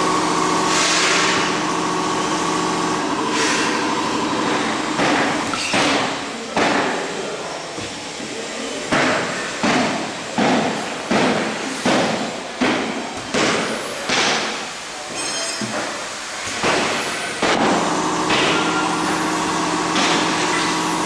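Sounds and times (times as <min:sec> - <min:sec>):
machine clunks with hiss: 0:03.2 - 0:04.0.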